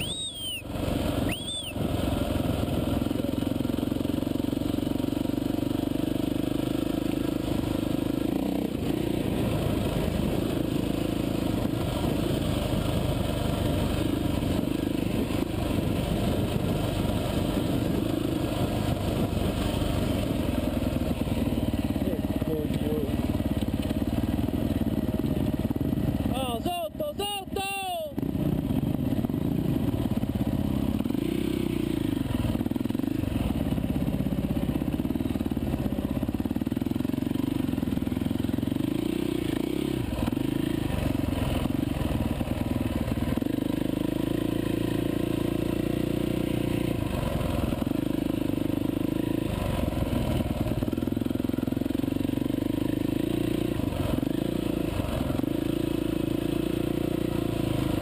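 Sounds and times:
dirt bike engine revving: 0:00.0 - 0:03.9, 0:27.6 - 0:34.3, 0:34.9 - 0:58.0.

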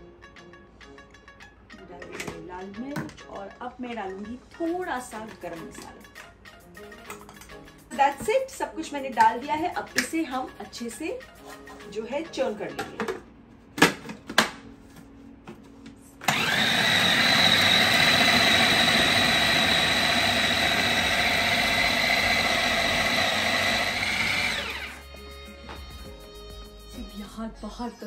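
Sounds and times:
food processor motor whining: 0:16.2 - 0:25.1.

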